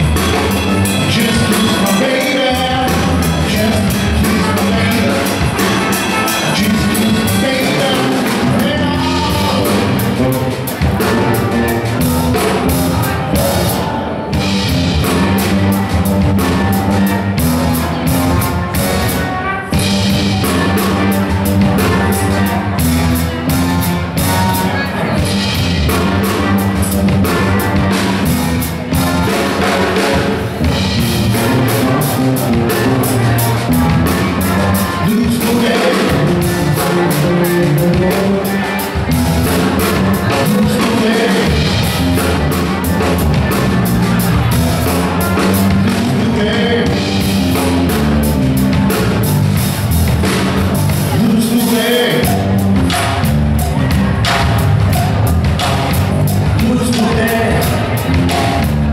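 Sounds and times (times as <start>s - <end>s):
trumpet: 0.0s - 53.3s
bass: 0.0s - 58.9s
drum kit: 0.0s - 58.9s
electric guitar: 0.0s - 58.9s
keyboard: 0.0s - 58.9s.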